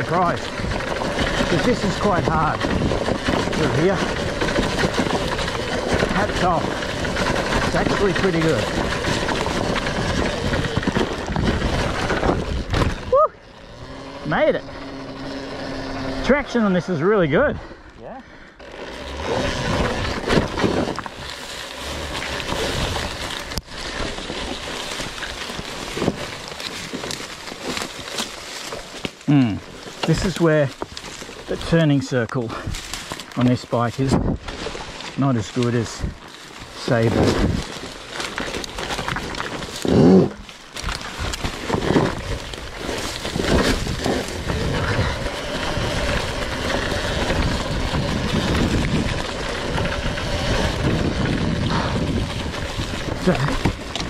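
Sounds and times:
electric drivetrain whine: 0.0 - 31.8, 34.2 - 54.0
tyres scraping over dirt and rocks: 0.0 - 54.0
long grass swishing and crackling: 18.9 - 54.0.

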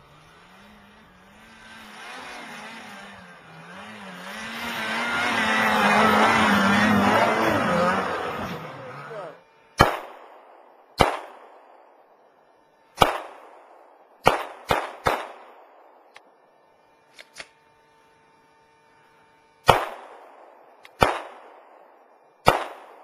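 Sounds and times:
pistol shots: 9.8 - 11.9, 13.0 - 16.0, 19.6 - 23.0.

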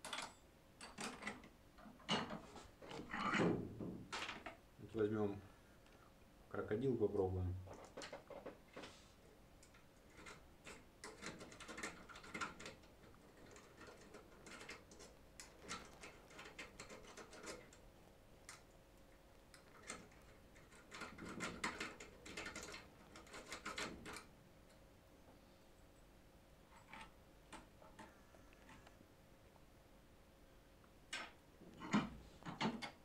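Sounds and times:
lock pick clicking and scraping: 9.6 - 17.8.

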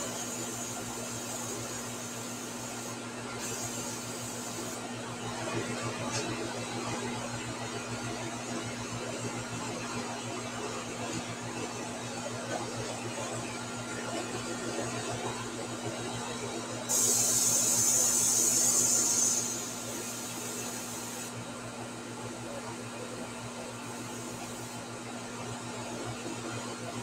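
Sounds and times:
airbrush hissing: 0.0 - 4.8, 16.9 - 21.3.

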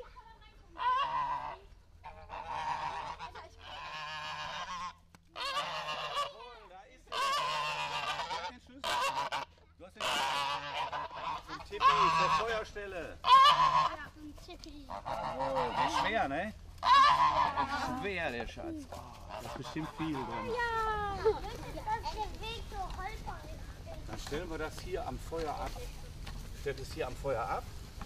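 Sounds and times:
geese honking: 0.7 - 22.6.

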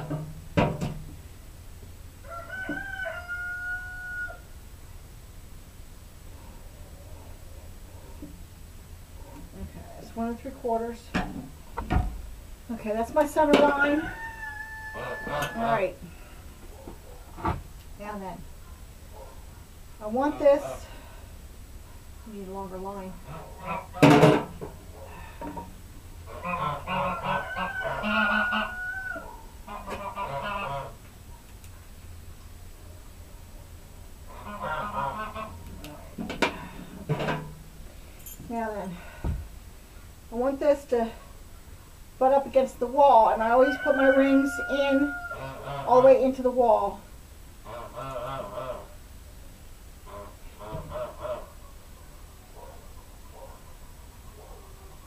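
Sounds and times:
rooster crowing: 2.2 - 4.6, 13.7 - 15.9, 26.4 - 29.4, 43.4 - 45.9
fowl calling: 13.7 - 16.3, 26.3 - 31.0, 34.3 - 35.6, 43.4 - 46.2, 47.6 - 49.0, 50.0 - 51.8.

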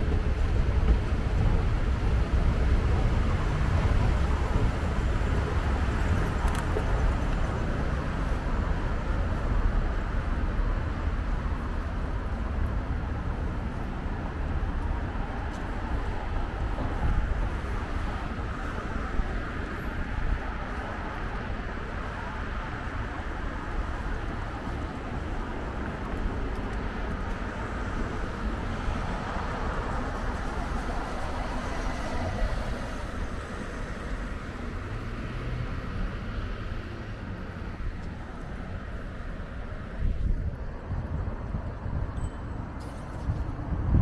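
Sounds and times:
traffic rumble: 0.0 - 44.0
voices of passers-by: 0.0 - 44.0.

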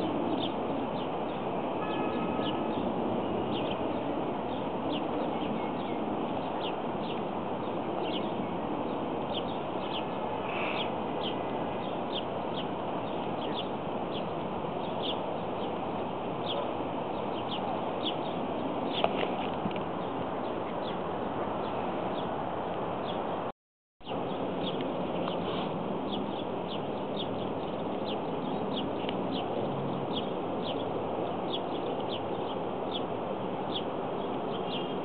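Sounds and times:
outdoor background hiss: 0.0 - 23.5.

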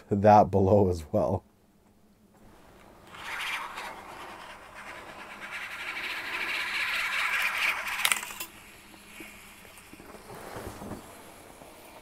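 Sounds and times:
fishing reel cranking whir: 3.1 - 8.6.

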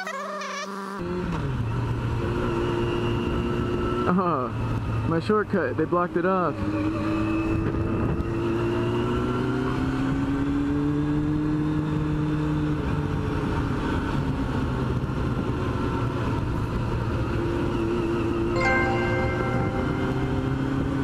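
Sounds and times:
motorcycle engine accelerating: 19.7 - 21.0.

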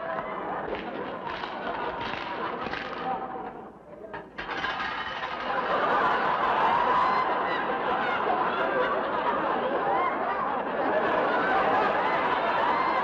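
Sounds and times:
audience laughing: 4.8 - 13.0.

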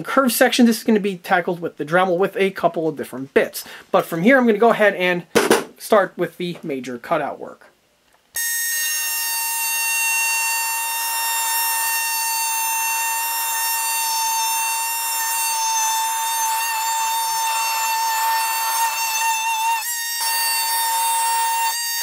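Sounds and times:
oscillating multi-tool cutting plastic: 8.4 - 22.0.

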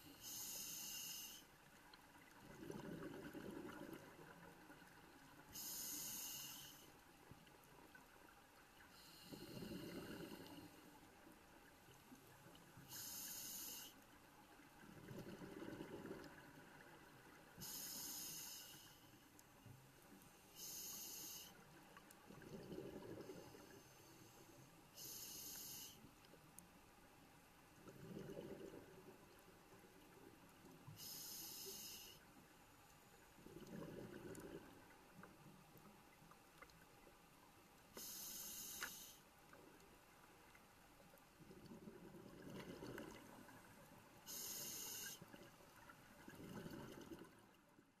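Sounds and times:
hissing inhale through regulator: 0.0 - 1.6, 5.5 - 7.0, 8.9 - 11.0, 12.8 - 14.1, 17.6 - 19.3, 20.3 - 21.7, 22.9 - 26.1, 30.9 - 32.4, 37.9 - 39.3, 44.2 - 45.4.

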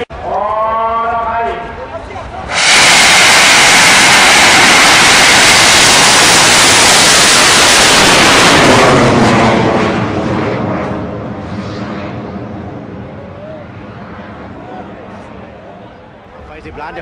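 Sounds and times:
rocket motor rushing hiss: 2.5 - 9.2.

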